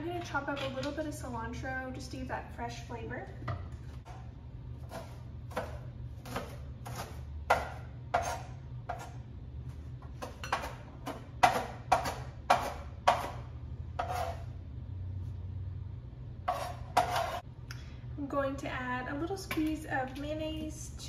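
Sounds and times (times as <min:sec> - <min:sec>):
knife chopping on wooden board: 0:04.8 - 0:09.2, 0:10.1 - 0:13.4.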